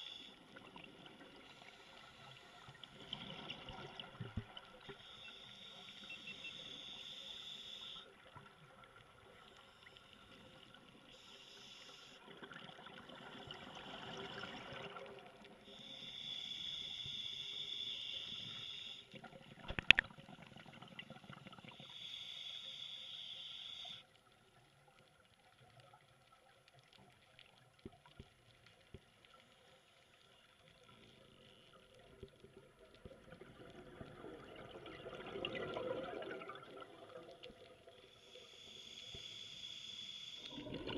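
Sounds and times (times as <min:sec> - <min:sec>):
regulator breathing hiss: 0:00.0 - 0:00.4, 0:04.9 - 0:08.1, 0:09.5 - 0:12.2, 0:15.6 - 0:19.1, 0:21.7 - 0:24.2, 0:38.0 - 0:40.6
faint water noise: 0:00.0 - 0:40.9
exhaled bubbles rushing: 0:33.4 - 0:37.3, 0:40.5 - 0:40.9.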